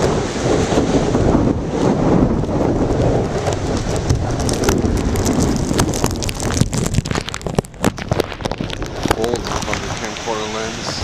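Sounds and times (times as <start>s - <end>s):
surf breaking over rocks: 0.0s - 11.0s
wind buffeting microphone: 0.0s - 11.0s
sharp crackling pops: 2.3s - 11.0s.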